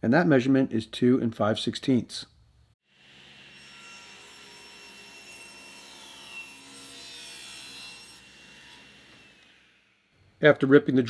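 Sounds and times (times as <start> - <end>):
table saw ripping a board: 3.0 - 10.0.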